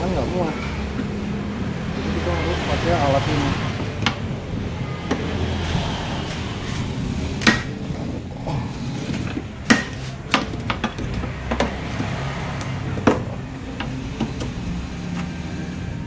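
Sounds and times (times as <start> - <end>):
sharp clicks and knocks: 3.8 - 4.4, 9.1 - 15.4.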